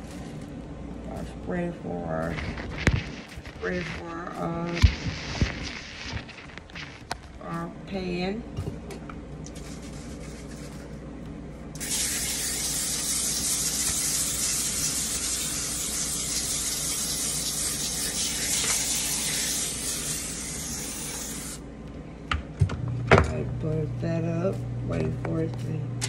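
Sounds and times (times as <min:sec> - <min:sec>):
aerosol cooking spray hissing: 0:11.8 - 0:21.6.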